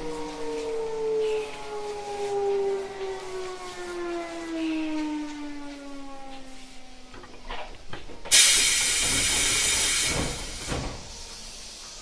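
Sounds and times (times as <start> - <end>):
train inverter whine: 0.0 - 12.0
train clunks: 7.1 - 12.0
compressed air hiss: 8.3 - 12.0.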